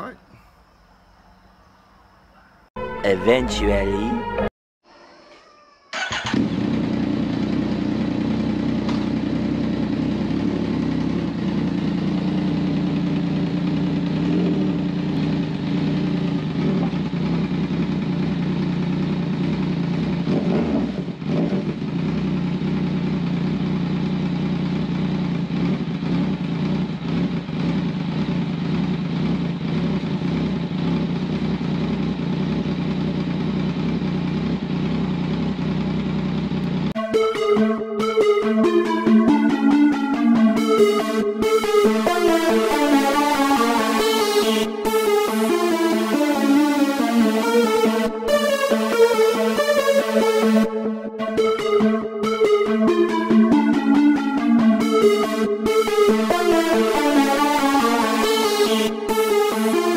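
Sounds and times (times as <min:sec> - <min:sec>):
motorcycle engine idling: 0:06.0 - 0:37.0.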